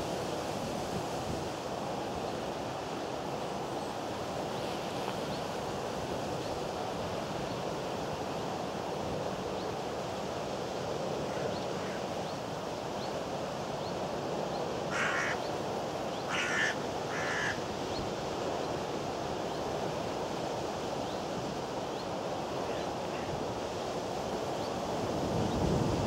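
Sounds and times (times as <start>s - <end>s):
harsh bird calls: 14.9s - 17.6s
wind rushing over microphone: 22.4s - 26.0s.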